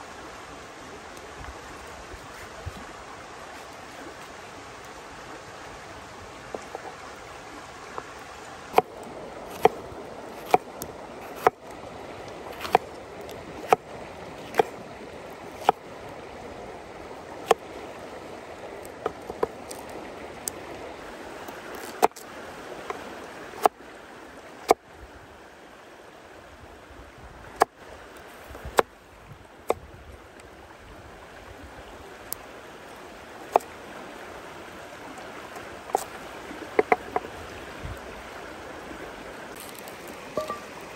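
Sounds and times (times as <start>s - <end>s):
stream running: 0.0s - 40.9s
knife chopping on wooden board: 12.6s - 12.8s, 14.4s - 14.7s.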